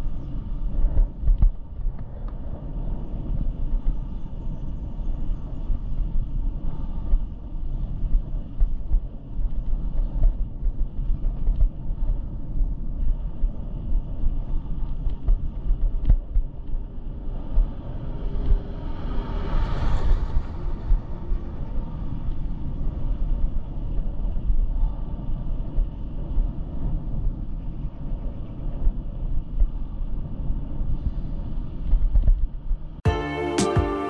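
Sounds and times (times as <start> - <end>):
wind buffeting microphone: 0.0 - 33.0
road rumble: 0.4 - 27.6
plucked-string music: 33.1 - 34.0.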